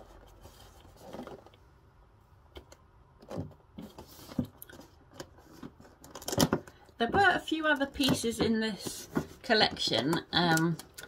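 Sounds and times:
cardboard boxes being handled: 0:00.0 - 0:01.6, 0:03.2 - 0:10.2.

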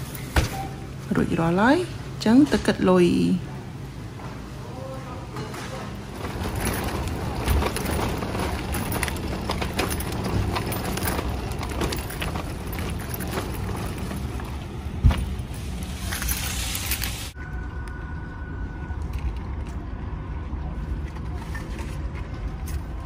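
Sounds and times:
shopping cart wheels rumbling: 0:04.0 - 0:23.0
wire basket rattling: 0:06.2 - 0:15.4.

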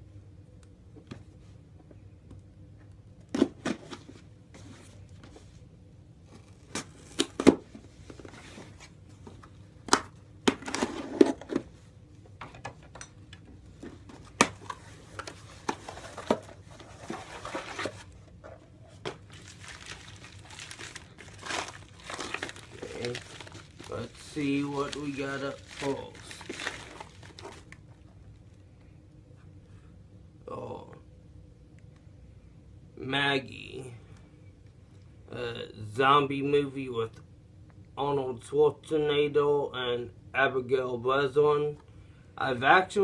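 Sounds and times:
packing wrap crinkling: 0:19.0 - 0:28.0.

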